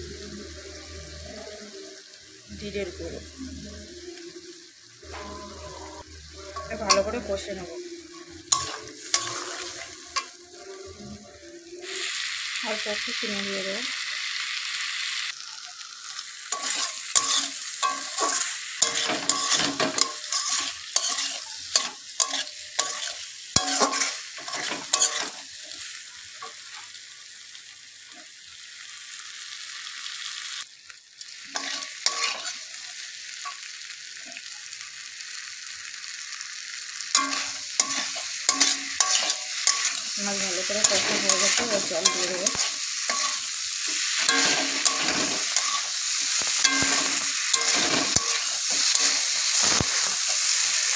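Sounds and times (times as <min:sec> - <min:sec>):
potatoes sizzling in oil: 0:00.0 - 0:50.9
spatula scraping metal pan: 0:08.5 - 0:10.3, 0:16.5 - 0:25.4, 0:37.2 - 0:50.3.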